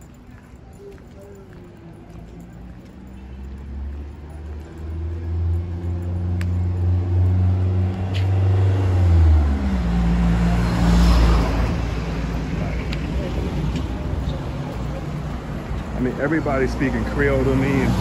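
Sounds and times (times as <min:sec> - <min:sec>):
car passing by: 0:07.1 - 0:14.0.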